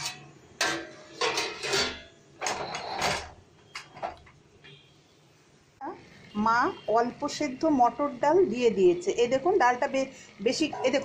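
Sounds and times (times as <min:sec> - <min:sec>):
metal lid scraping and rattling: 0:00.0 - 0:03.4, 0:10.6 - 0:11.0.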